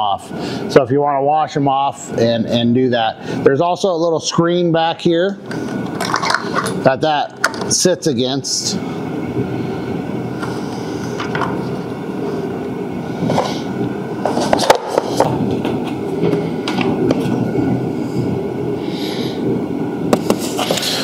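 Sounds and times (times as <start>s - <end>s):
low rushing noise: 6.8s - 21.0s.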